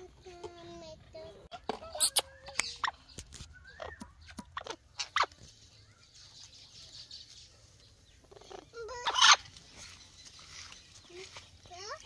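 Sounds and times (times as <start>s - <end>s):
parrot squawking: 2.0s - 3.0s, 9.0s - 9.4s.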